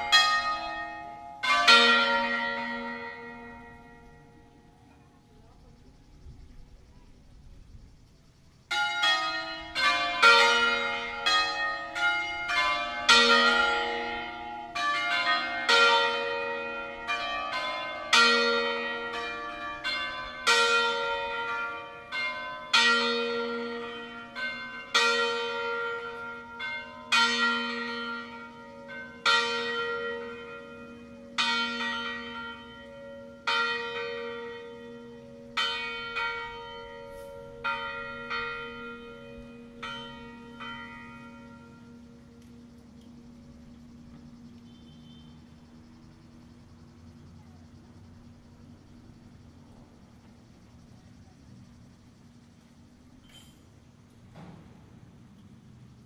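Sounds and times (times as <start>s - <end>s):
church bells ringing: 0.0s - 5.0s, 8.7s - 47.1s.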